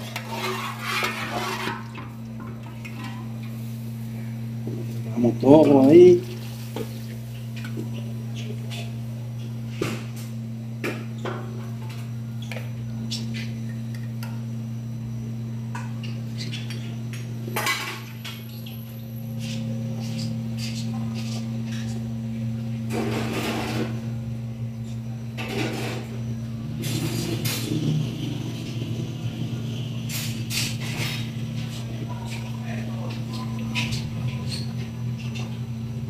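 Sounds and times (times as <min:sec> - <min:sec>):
metal spoon scraping pot: 0:00.0 - 0:02.0
low hum: 0:14.2 - 0:36.0.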